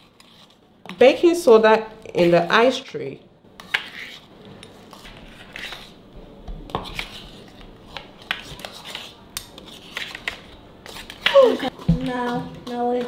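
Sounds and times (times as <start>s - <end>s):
spoon scraping plastic bowl: 0.0s - 1.0s.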